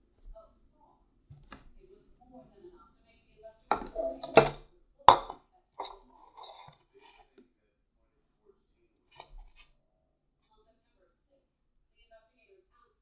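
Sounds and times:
bowl knocking on tabletop: 3.7 - 6.6
bowl clinks and handling: 3.7 - 7.3.

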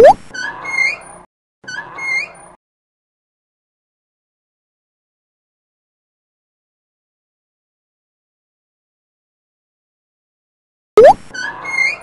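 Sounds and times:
sharp cartoon pop: 0.0 - 0.2, 11.0 - 11.2.

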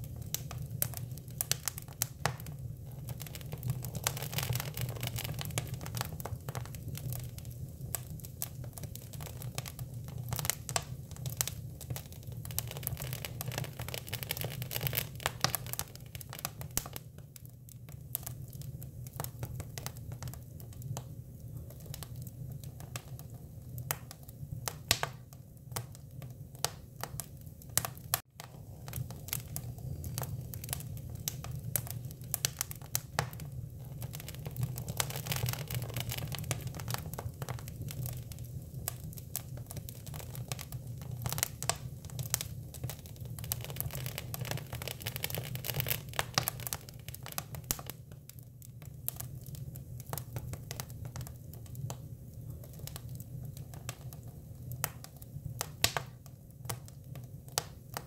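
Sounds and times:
wood fire crackling and popping: 0.0 - 58.0.

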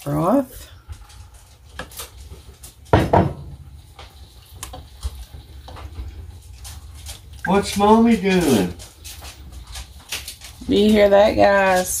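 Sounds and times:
spatula stirring thick chili: 3.6 - 11.8.

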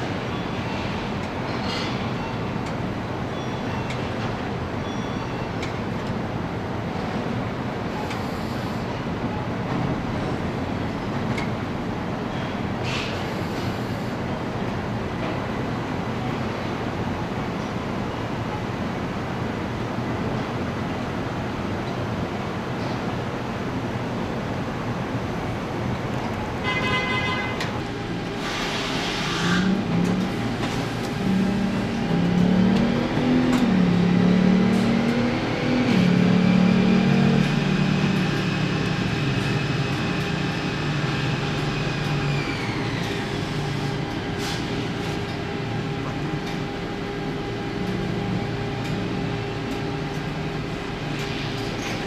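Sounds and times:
factory machine hum: 0.0 - 52.0
electric drive and tyres whining: 27.9 - 44.3.

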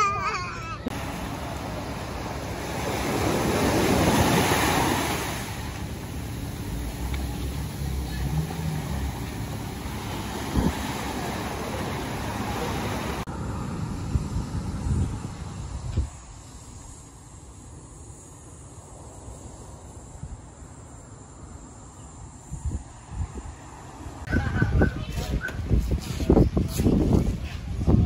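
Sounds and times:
waves breaking on a beach: 0.9 - 13.3.

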